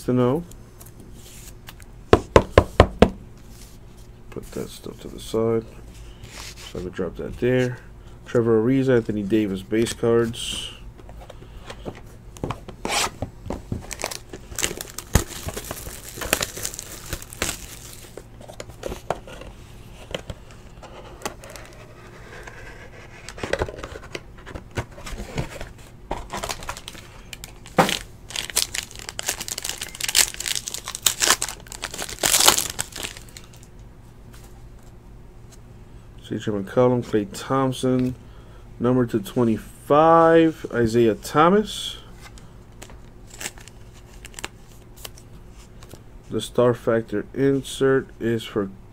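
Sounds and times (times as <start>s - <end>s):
foil wrapper crinkling and tearing: 13.9s - 18.2s, 26.4s - 33.7s, 42.8s - 45.2s.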